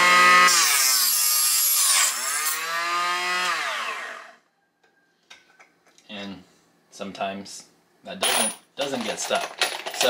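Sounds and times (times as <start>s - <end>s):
chop saw motor whine: 0.0s - 4.4s.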